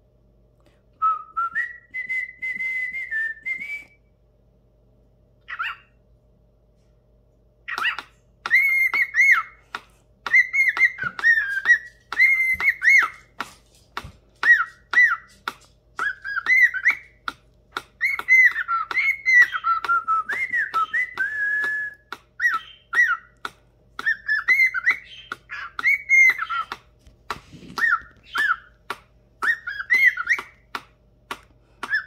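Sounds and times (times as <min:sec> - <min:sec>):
cockatiel whistling: 0:07.7 - 0:09.6, 0:10.2 - 0:13.4, 0:14.4 - 0:26.8, 0:27.6 - 0:30.9.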